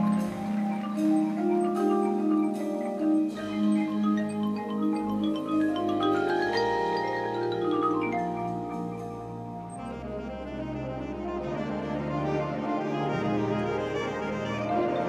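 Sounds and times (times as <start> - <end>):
mallet percussion playing: 0.0 - 10.3.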